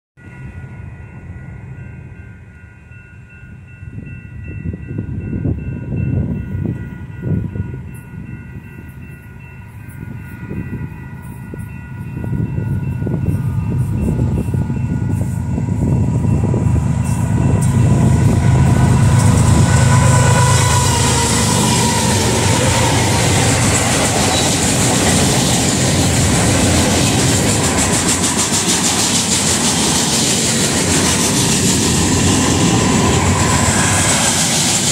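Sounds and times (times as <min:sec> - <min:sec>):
diesel locomotives passing: 0:00.2 - 0:34.9
train horn chord: 0:12.4 - 0:25.2.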